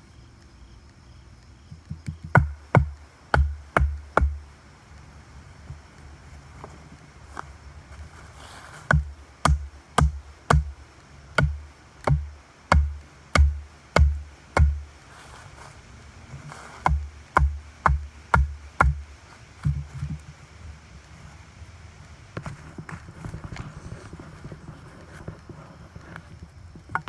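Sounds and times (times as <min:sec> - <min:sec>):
wooden club pounding stake: 0:02.0 - 0:04.4, 0:08.9 - 0:10.8, 0:11.4 - 0:14.8, 0:16.8 - 0:20.2.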